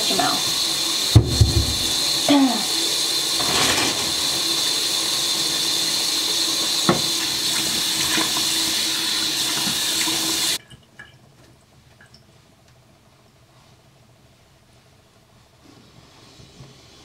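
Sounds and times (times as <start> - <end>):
sink tap running: 0.0 - 10.6.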